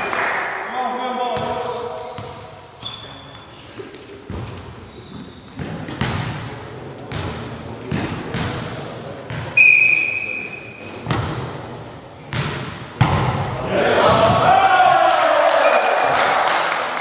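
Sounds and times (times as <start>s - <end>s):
volleyball bouncing on floor: 5.6s - 6.5s, 7.1s - 8.7s, 11.0s - 11.5s, 12.3s - 13.5s
referee's whistle: 9.6s - 10.8s.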